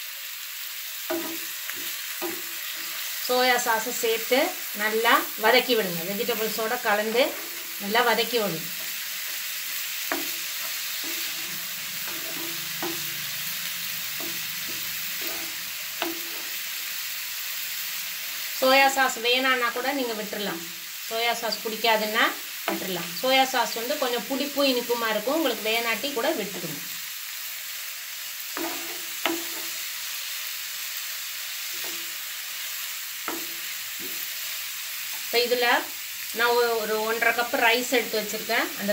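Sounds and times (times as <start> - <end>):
vegetables sizzling in a pan: 0.0 - 38.9
wooden spatula scraping a pan: 6.4 - 16.6.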